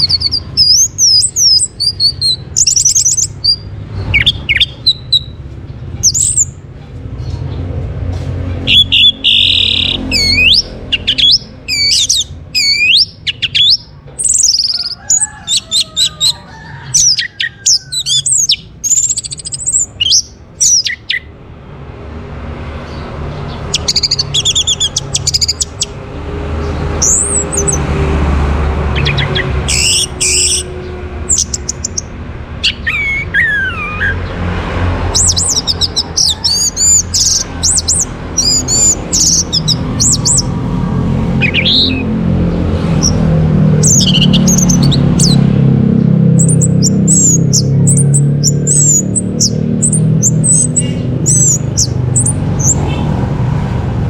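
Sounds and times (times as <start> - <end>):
bird singing whistled notes: 0.0 - 5.4, 8.6 - 14.9, 23.8 - 25.9, 43.9 - 45.4, 46.4 - 52.8.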